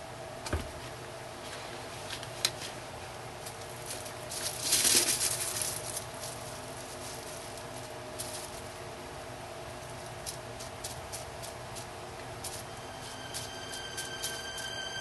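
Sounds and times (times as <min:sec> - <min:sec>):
bubble wrap crinkling: 0:03.4 - 0:08.9, 0:09.6 - 0:14.8.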